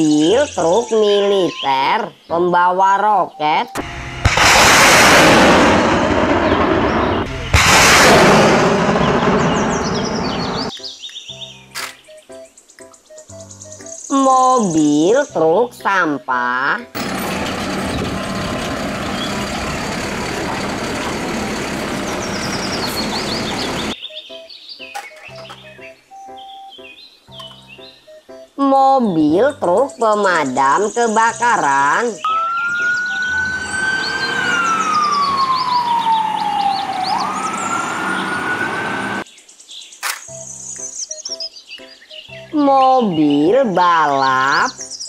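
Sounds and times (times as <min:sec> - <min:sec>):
garbage truck engine running: 0:03.8 - 0:10.7, 0:17.0 - 0:24.0, 0:32.4 - 0:39.2
hydraulics working: 0:17.0 - 0:24.0.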